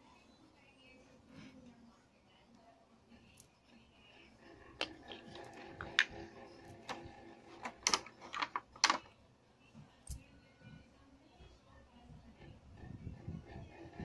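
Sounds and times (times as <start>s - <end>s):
wooden pieces clacking on tiles: 4.8s - 7.0s, 7.6s - 9.0s.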